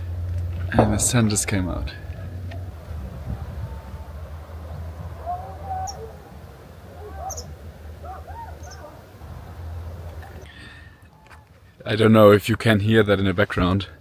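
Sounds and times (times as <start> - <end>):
low steady rumble: 0.0 - 12.6
distant people shouting: 0.8 - 10.4
bird chirps: 7.0 - 9.0.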